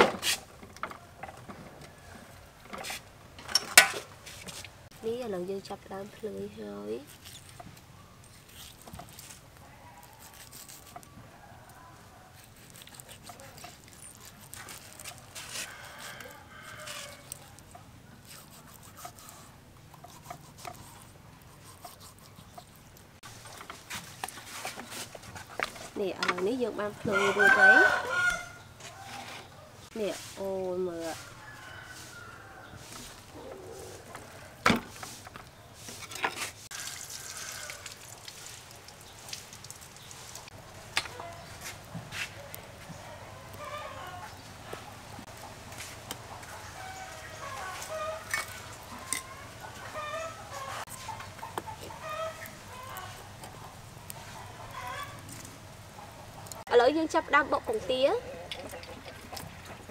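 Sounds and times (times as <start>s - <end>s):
rooster crowing: 10.9s - 12.4s, 15.4s - 17.6s, 27.0s - 29.9s, 31.0s - 34.7s, 36.7s - 38.0s, 42.4s - 44.4s, 46.6s - 51.1s, 51.8s - 53.3s.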